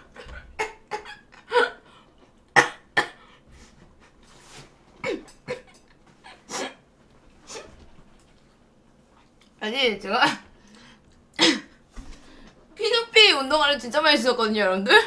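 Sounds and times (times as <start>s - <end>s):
woman coughing: 0.0s - 1.8s, 2.6s - 3.2s, 5.0s - 6.8s, 11.4s - 11.8s.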